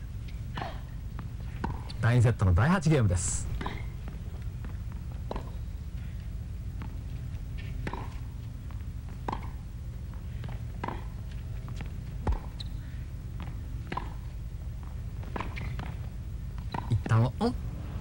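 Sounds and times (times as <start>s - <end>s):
steady low hum: 0.0s - 18.0s
tennis ball hit by rackets: 1.6s - 1.9s, 3.5s - 3.9s, 5.3s - 5.6s, 7.7s - 8.3s, 9.2s - 9.6s, 10.4s - 11.2s, 12.2s - 12.6s, 13.4s - 14.3s, 15.2s - 16.0s, 16.6s - 17.1s.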